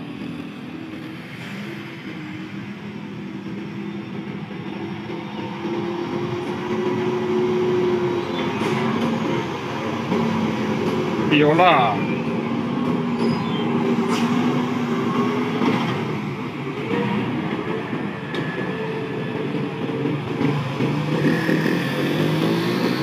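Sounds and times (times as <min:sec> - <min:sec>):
diesel truck engines droning: 0:00.0 - 0:23.0.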